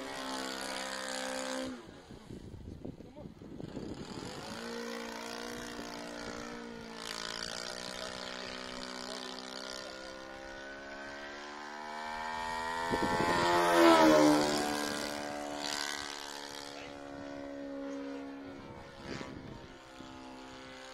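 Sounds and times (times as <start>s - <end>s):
model airplane engine: 0.0s - 20.9s.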